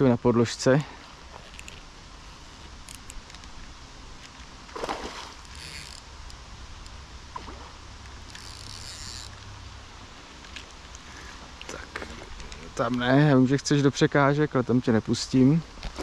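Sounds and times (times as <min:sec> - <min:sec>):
fish splashing water: 0:04.7 - 0:05.5
steady low rumble: 0:06.0 - 0:08.4.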